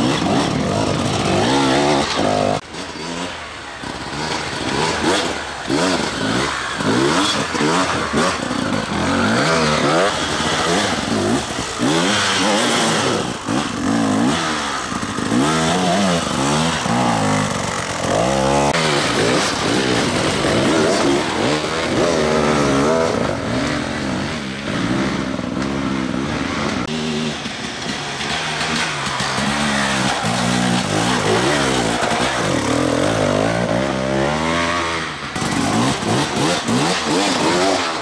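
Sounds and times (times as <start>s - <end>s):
dirt bike engines revving: 0.0s - 38.0s.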